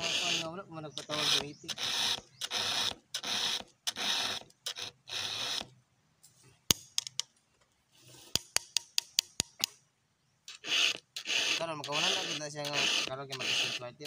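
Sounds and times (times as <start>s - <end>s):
file rasping on chainsaw chain: 0.0s - 5.7s, 10.5s - 14.0s.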